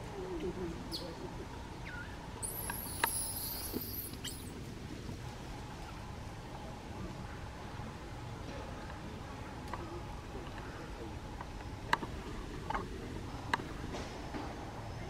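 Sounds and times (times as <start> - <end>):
baby monkey squealing: 1.9 - 4.5.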